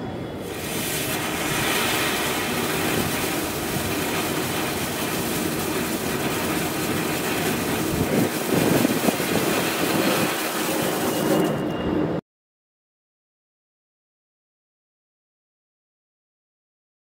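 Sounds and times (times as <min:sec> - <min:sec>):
firework fountain hissing and crackling: 0:00.3 - 0:11.7.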